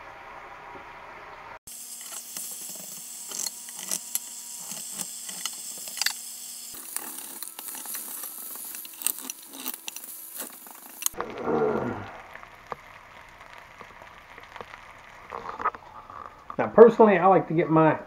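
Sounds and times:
ham sizzling in skillet: 1.7 - 16.6
fat popping and crackling: 1.9 - 17.0
metal utensils scraping pan: 2.0 - 6.2, 6.8 - 11.2.

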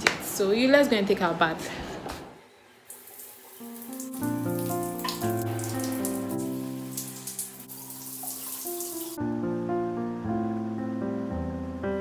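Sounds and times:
shower water running: 2.8 - 9.2
background music with held notes: 3.6 - 12.0.

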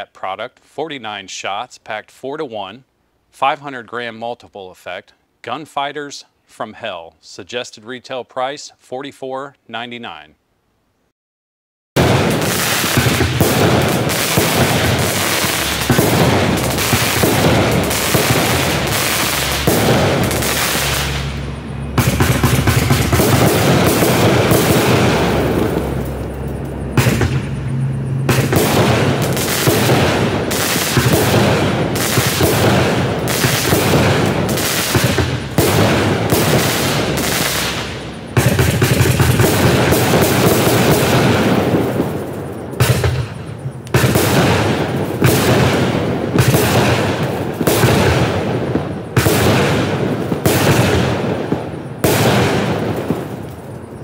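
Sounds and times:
firework cake bangs and crackling: 12.0 - 26.1, 26.9 - 54.0.

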